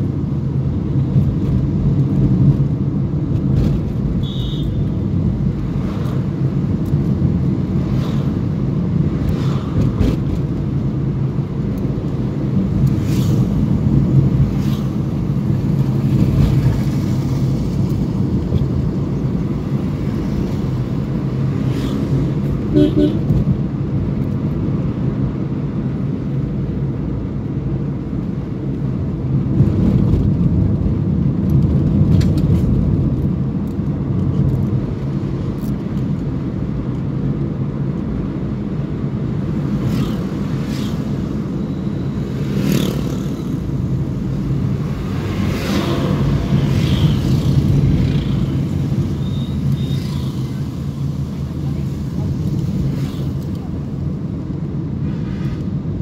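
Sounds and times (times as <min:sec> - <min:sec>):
engine and tyre rumble in car: 0:00.0 - 0:56.0.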